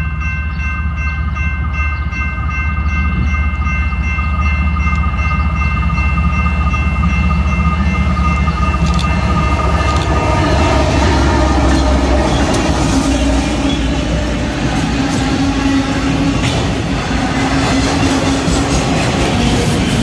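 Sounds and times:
diesel locomotive engine rumble: 0.0 - 20.0
train wheels rushing on rails: 0.9 - 20.0
light clicking of rail cars: 4.3 - 20.0.

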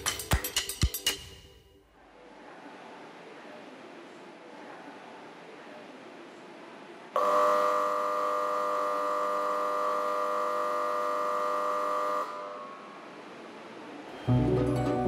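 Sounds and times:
electric buzzer steady tone: 7.2 - 12.9.

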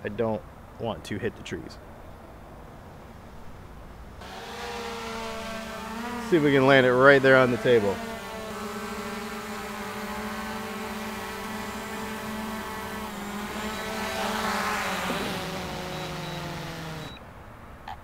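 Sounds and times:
drone propellers whining: 4.2 - 17.2.

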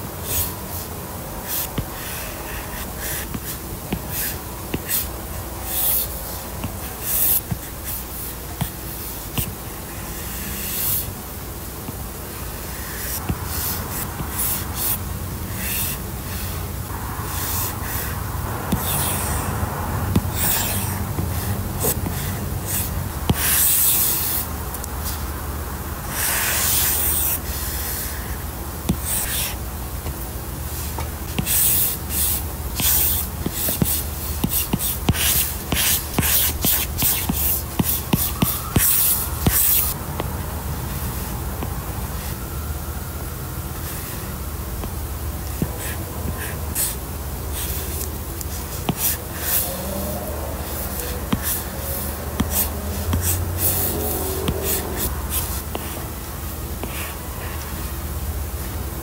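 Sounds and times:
steady low hum: 0.0 - 59.0
pen scratching on paper: 5.7 - 8.8, 18.7 - 19.5, 20.1 - 24.4, 31.3 - 39.9, 48.9 - 49.7, 50.6 - 56.0.

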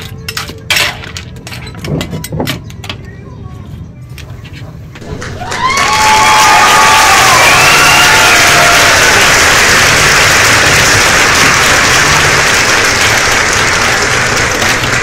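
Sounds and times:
cheers: 5.0 - 14.1
crowd applauding: 5.0 - 15.0.

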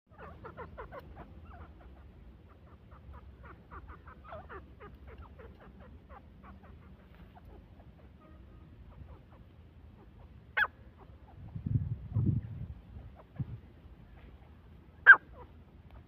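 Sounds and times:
low background rumble: 0.1 - 16.0
francolin calling: 15.0 - 15.5.

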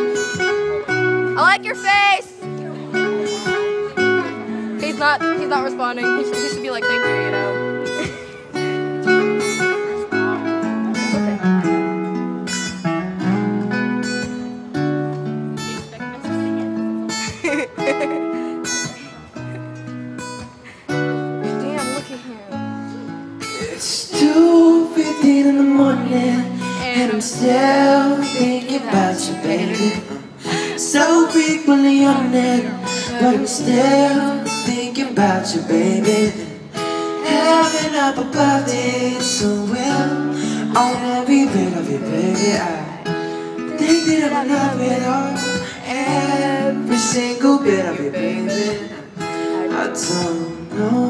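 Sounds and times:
acoustic guitars strummed: 0.0 - 51.0
man singing into a microphone: 23.5 - 51.0.

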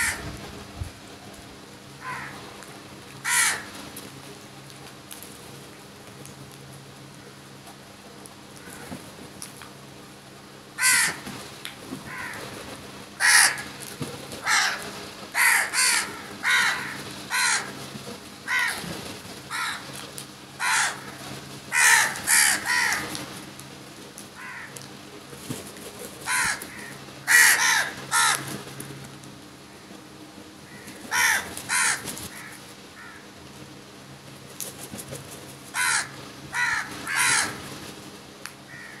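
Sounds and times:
crows cawing: 0.0 - 0.3, 2.0 - 2.4, 3.2 - 3.8, 8.6 - 9.0, 10.8 - 11.3, 12.0 - 12.5, 13.2 - 13.8, 14.4 - 17.8, 18.4 - 18.9, 19.5 - 19.9, 20.6 - 23.2, 24.4 - 24.8, 26.2 - 28.8, 30.6 - 33.3, 35.7 - 37.7, 38.7 - 39.0.

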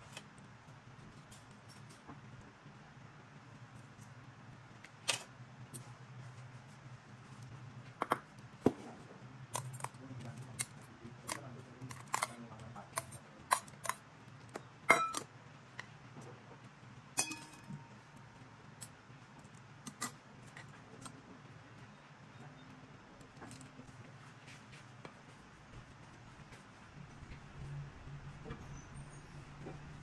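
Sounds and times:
dishes clinking on a table: 14.9 - 15.3, 17.2 - 18.0.

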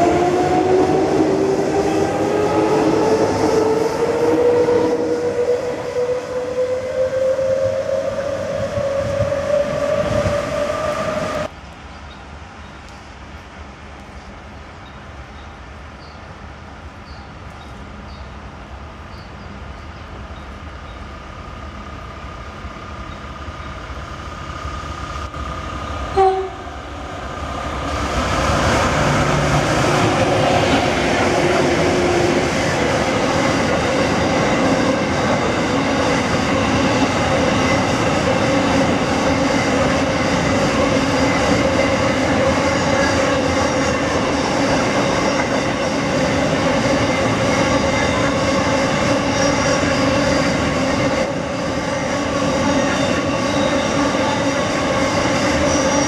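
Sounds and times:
train wheels on rails: 0.0 - 11.6, 16.9 - 56.0
diesel locomotive engines: 0.0 - 56.0
train horn blast: 26.1 - 26.9.

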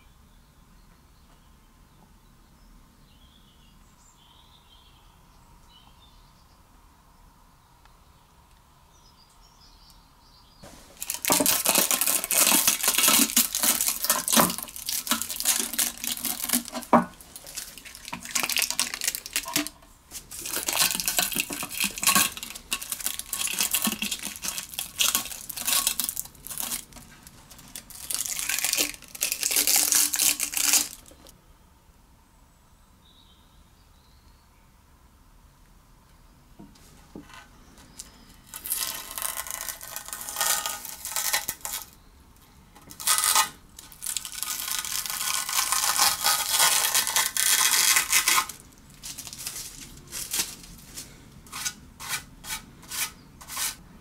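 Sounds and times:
harsh abrasive scrubbing: 45.5 - 53.8.

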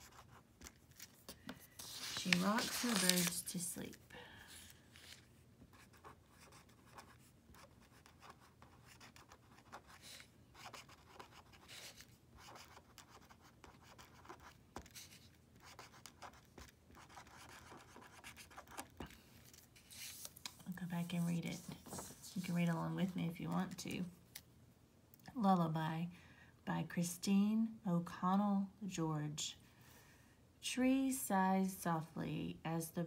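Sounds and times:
pen scratching on paper: 0.0 - 0.4, 5.7 - 18.9.

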